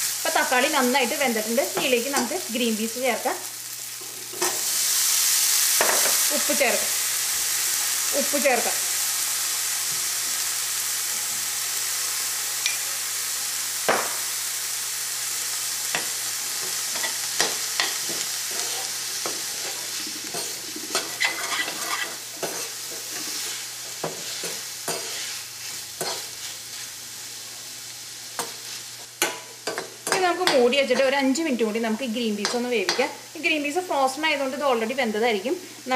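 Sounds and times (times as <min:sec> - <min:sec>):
food sizzling in oil: 0:00.0 - 0:35.9
spatula scraping a pan: 0:16.7 - 0:26.9.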